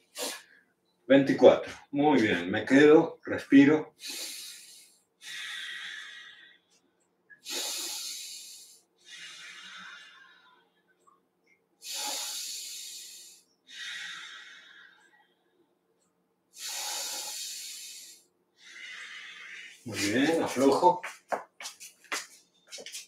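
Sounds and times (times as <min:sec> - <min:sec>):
person breathing slowly: 0:04.0 - 0:06.8, 0:07.4 - 0:11.0, 0:11.8 - 0:15.5, 0:16.6 - 0:20.4.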